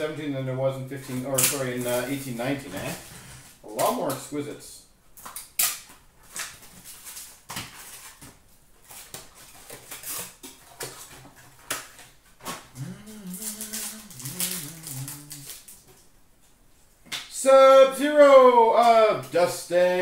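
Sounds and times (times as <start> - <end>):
card pack wrapper crinkling: 1.0 - 3.1, 12.6 - 16.0
low voice humming: 12.7 - 15.7.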